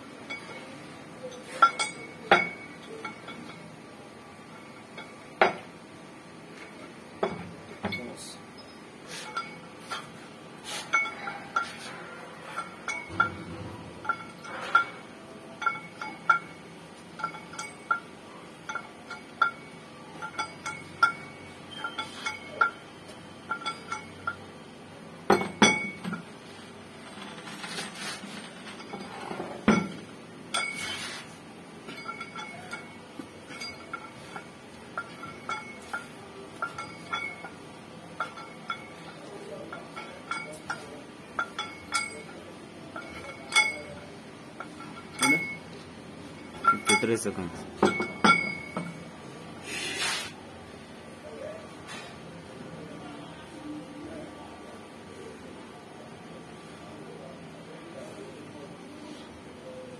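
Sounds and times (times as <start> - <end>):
metal plates clinking: 0.2 - 3.8, 9.1 - 24.6, 27.0 - 49.1
metal clatter: 10.9 - 22.8.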